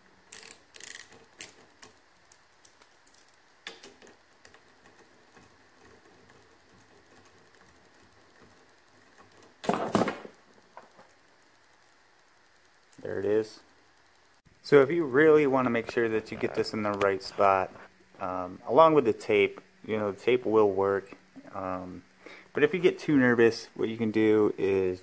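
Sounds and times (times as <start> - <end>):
ratchet wrench clicks: 0.3 - 4.6
tool clattering: 9.6 - 11.0.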